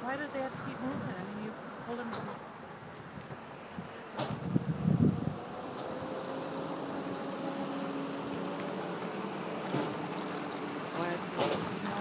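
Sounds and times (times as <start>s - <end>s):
road noise inside vehicle: 0.0s - 12.0s
engine hum rising in pitch: 4.4s - 12.0s.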